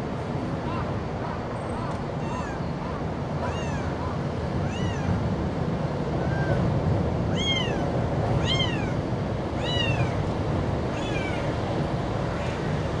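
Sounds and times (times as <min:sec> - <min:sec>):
kitten meowing: 0:02.2 - 0:02.6, 0:03.4 - 0:04.0, 0:04.6 - 0:05.2, 0:06.2 - 0:06.6, 0:07.3 - 0:09.0, 0:09.6 - 0:10.2, 0:10.9 - 0:11.5.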